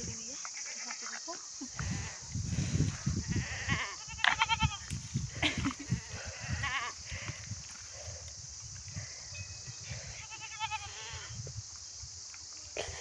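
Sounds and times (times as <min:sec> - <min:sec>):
rustling of animals moving: 0:00.0 - 0:12.8
goats bleating: 0:03.3 - 0:04.8, 0:05.9 - 0:07.0, 0:10.0 - 0:11.3.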